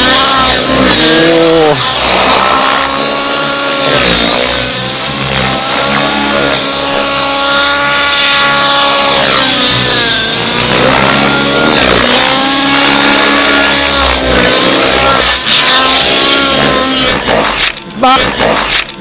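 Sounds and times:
rc helicopter motor whine: 0.0 - 19.0.

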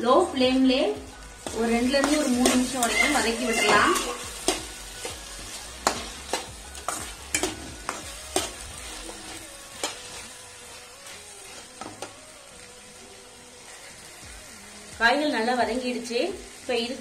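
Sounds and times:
vegetables sizzling: 0.0 - 17.0
metal spatula scraping a pan: 1.4 - 12.2.

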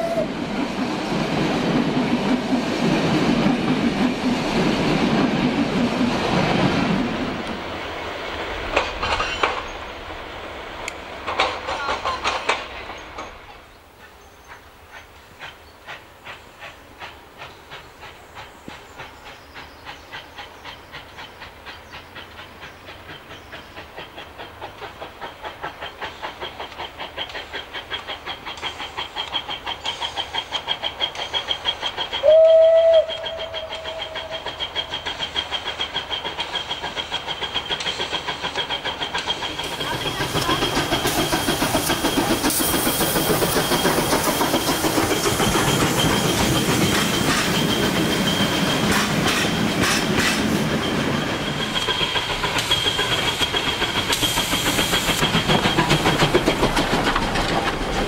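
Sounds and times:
train whistle blast: 0.0 - 0.3, 32.2 - 34.6
steam locomotive exhaust beats: 0.0 - 58.0.

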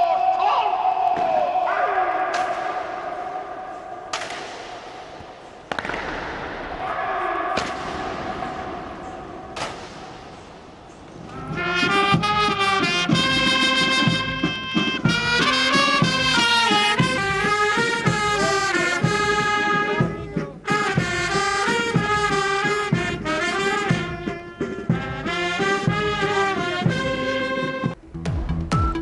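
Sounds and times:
horn notes: 11.2 - 28.0
brass band music: 11.3 - 28.0.

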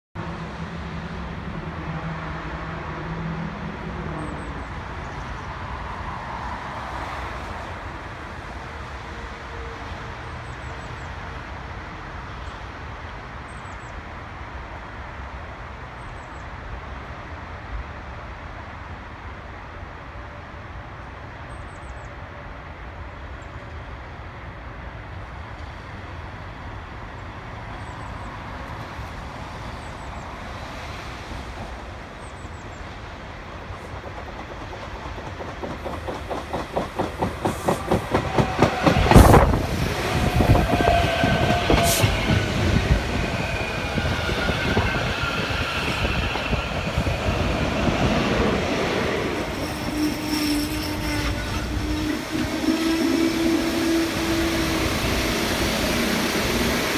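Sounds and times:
road traffic rumble: 25.4 - 56.9.

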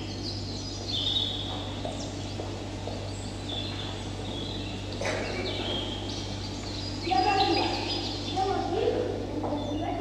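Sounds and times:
birds chirping: 0.0 - 10.0
low electrical hum: 0.0 - 10.0.

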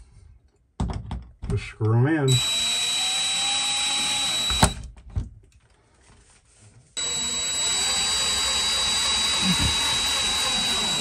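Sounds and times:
drill click: 2.3 - 4.8, 7.0 - 11.0
power drill whining: 2.3 - 4.9, 7.0 - 11.0.

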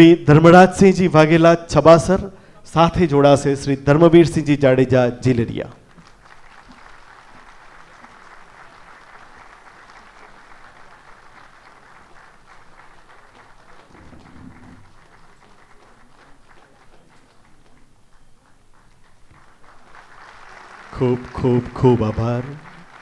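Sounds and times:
audience applauding: 5.7 - 23.0.

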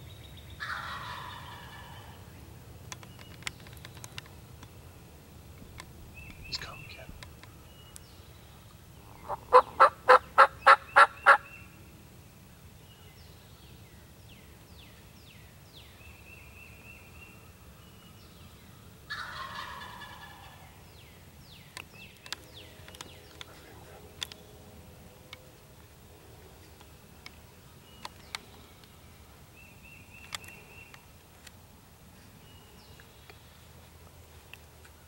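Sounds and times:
songbirds chirping: 0.0 - 35.0
turkey call yelps: 0.6 - 2.0, 9.2 - 11.6, 19.1 - 20.6
turkey gobbling: 0.6 - 2.1, 9.2 - 11.5, 19.1 - 20.6.

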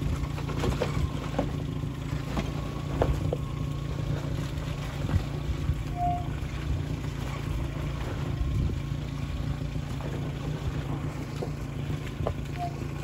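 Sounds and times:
car engine running: 0.0 - 13.0
short squeak: 5.9 - 6.4, 12.5 - 13.0.

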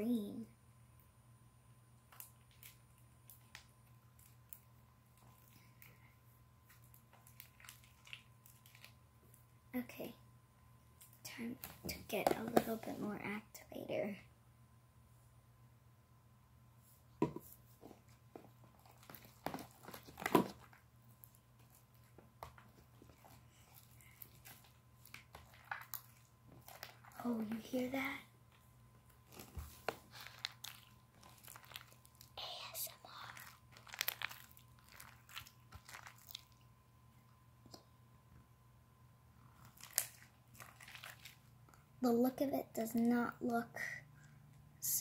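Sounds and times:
slime squelching: 2.0 - 9.5, 17.4 - 36.8, 39.5 - 42.3.

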